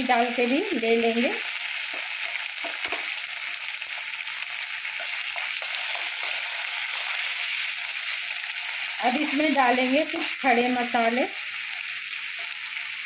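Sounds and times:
paste sizzling in hot oil: 0.0 - 13.0
spoon stirring: 5.0 - 10.5.

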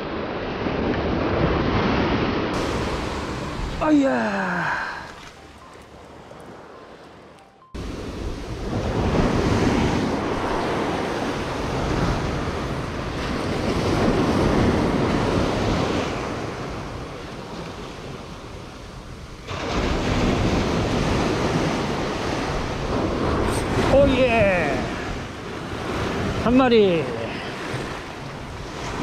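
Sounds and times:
surf breaking on rocky beach: 1.2 - 5.2
wind buffeting microphone: 5.9 - 26.6, 27.5 - 29.0.

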